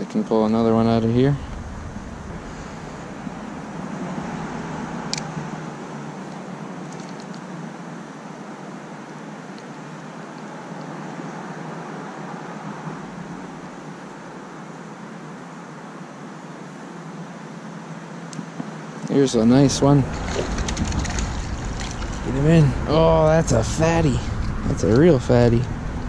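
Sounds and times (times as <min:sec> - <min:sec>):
rushing outdoor background noise: 0:00.0 - 0:26.0.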